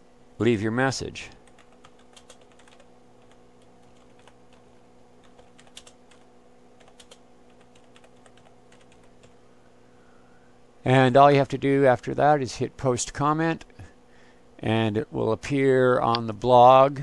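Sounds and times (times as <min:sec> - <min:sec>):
steady low hum: 0:00.0 - 0:17.0
keyboard typing clicks: 0:01.4 - 0:04.6, 0:05.2 - 0:06.2, 0:06.8 - 0:09.4.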